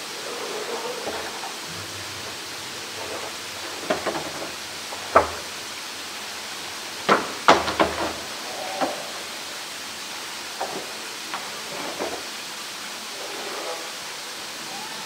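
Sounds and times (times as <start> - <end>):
steady rushing noise: 0.0 - 8.5.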